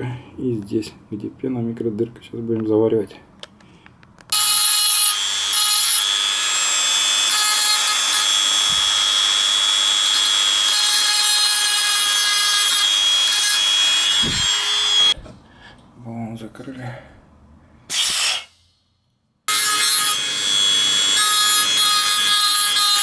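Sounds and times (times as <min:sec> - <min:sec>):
rotary tool grinding metal: 0:04.3 - 0:15.2, 0:19.5 - 0:23.0.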